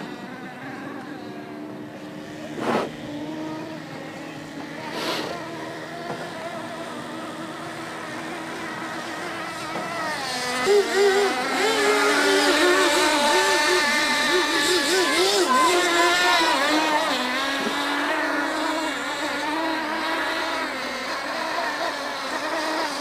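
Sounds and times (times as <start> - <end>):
model boat engines whining: 0.0 - 23.0
short whooshes: 2.6 - 2.9.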